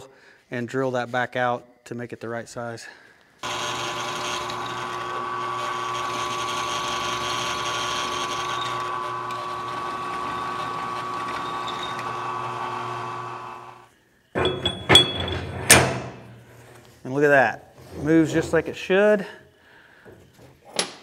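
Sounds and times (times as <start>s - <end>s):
milling machine drilling steel: 3.4s - 13.9s.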